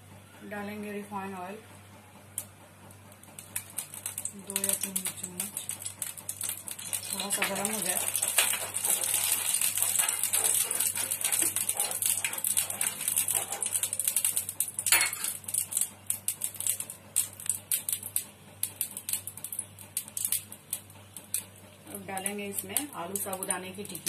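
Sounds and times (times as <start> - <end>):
spoon scraping a frying pan: 7.1 - 13.9.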